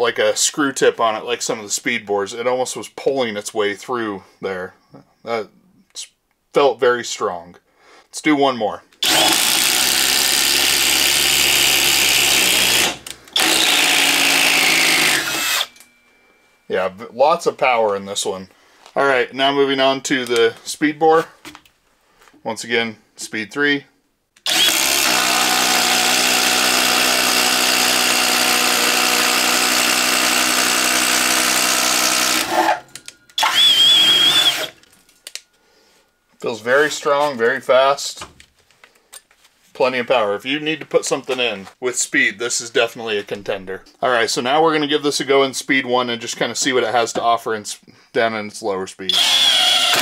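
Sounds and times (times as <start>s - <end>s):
impact driver drilling into wood: 9.0s - 15.8s, 24.4s - 34.8s, 49.1s - 50.0s
thin high whine: 32.5s - 35.2s.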